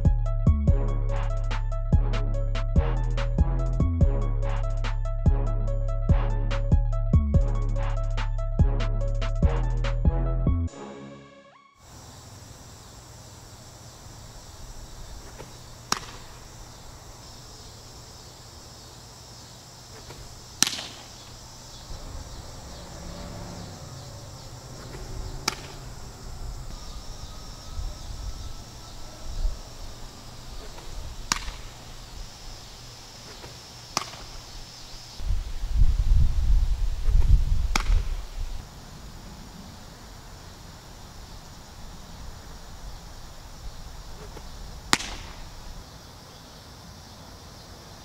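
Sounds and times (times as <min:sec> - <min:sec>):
high insect drone: 0:11.8 - 0:48.0
baseballs smacking into mitt: 0:15.2 - 0:16.5, 0:19.9 - 0:21.3, 0:25.4 - 0:25.8, 0:30.6 - 0:31.8, 0:33.2 - 0:34.4, 0:37.7 - 0:38.2, 0:44.2 - 0:45.5.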